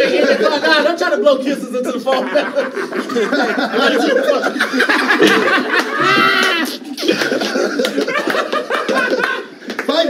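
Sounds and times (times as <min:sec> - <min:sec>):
men laughing: 0:00.0 - 0:09.7
high-pitched yell: 0:05.9 - 0:06.9
men shouting: 0:05.9 - 0:06.9.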